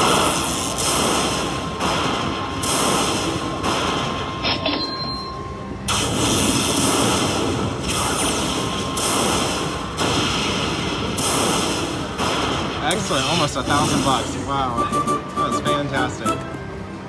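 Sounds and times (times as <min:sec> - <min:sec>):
lightning-strike sound effects: 0:05.9 - 0:14.6.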